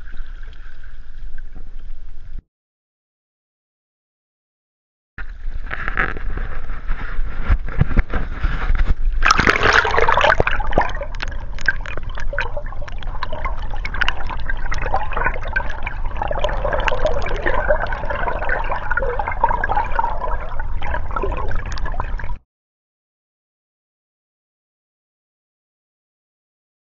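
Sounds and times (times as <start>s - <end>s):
underwater swishing and bubbling: 0.0s - 2.4s, 5.3s - 22.4s
loud splash: 9.2s - 22.4s
river water sloshing and gurgling: 9.2s - 22.4s
small underwater clicks: 9.4s - 19.2s.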